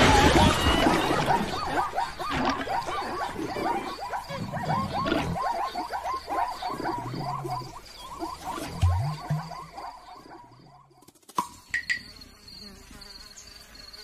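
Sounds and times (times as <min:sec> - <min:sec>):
squeaky calls: 0:00.0 - 0:10.8.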